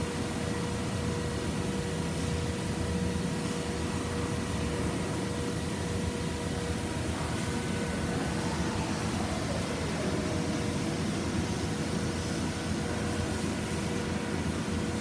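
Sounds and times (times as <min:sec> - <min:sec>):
boring mill humming and whining: 0:00.0 - 0:15.0.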